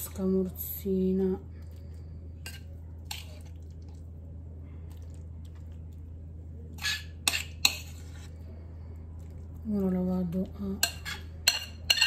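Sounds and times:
steady low hum: 0:00.0 - 0:12.0
metal spoon scraping ceramic bowl: 0:06.8 - 0:08.4, 0:10.8 - 0:12.0.

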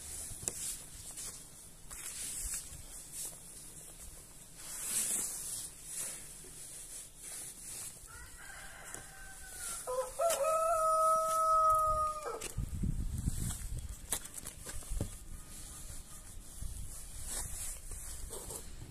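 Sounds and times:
rooster crowing: 0:08.1 - 0:12.6
cloth wiping window glass: 0:14.8 - 0:18.8.

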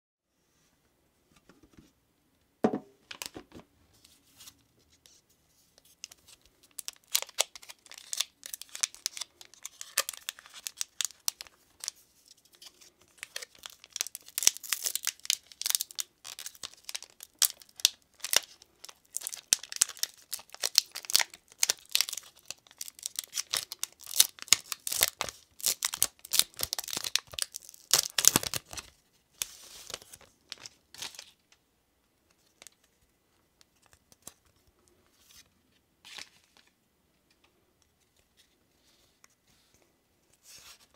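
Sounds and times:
foil wrapper crinkling and tearing: 0:06.0 - 0:31.4.

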